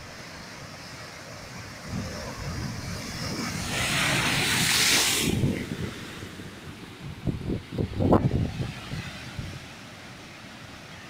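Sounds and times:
ocean surf on rocks: 0.0s - 11.0s
wave crashing with hiss of spray: 0.0s - 11.0s.

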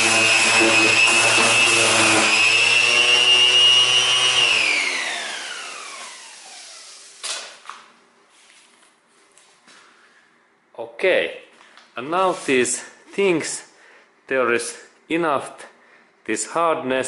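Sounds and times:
electric orbital sander whining: 0.0s - 7.2s.

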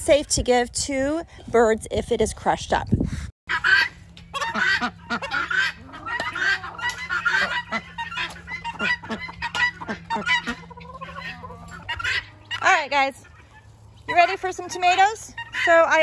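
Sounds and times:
chickens and ducks calling: 3.5s - 16.0s.

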